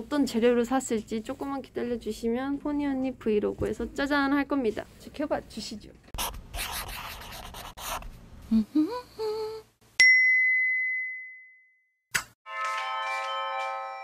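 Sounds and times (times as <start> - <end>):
bright ringing ding: 10.0 - 11.8.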